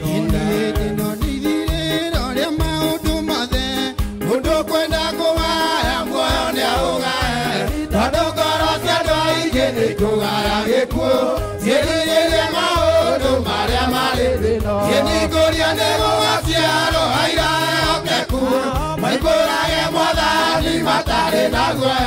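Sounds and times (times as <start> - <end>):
men singing a hymn: 0.0 - 22.0
low bass notes: 7.0 - 22.0.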